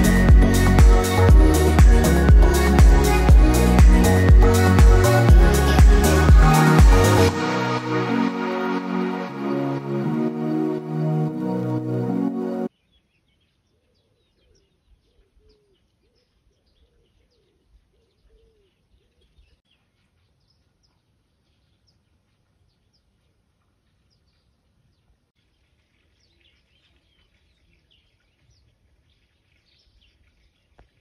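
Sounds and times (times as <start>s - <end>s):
small birds chirping: 12.7s - 31.0s.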